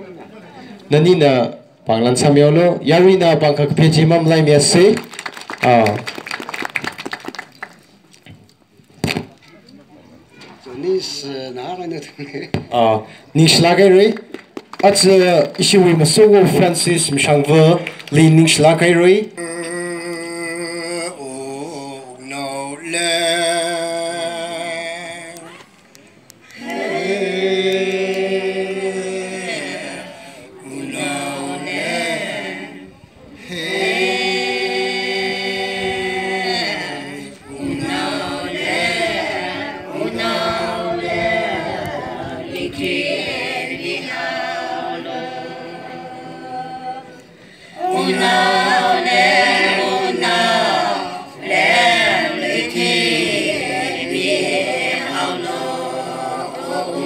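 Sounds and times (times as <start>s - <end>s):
group singing unaccompanied: 19.4s - 25.6s, 26.4s - 57.0s.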